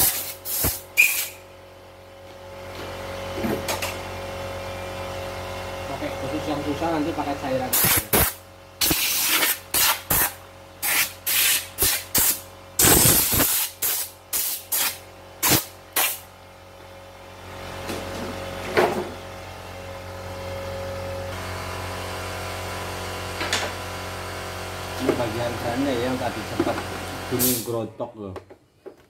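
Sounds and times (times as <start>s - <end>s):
spray gun hissing blasts: 0.0s - 1.4s
steady hum with held tone: 0.0s - 28.2s.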